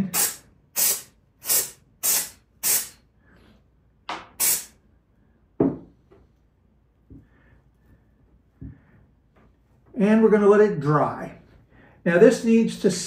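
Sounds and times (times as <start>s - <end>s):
aerosol can spraying: 0.0s - 3.0s, 4.4s - 4.8s.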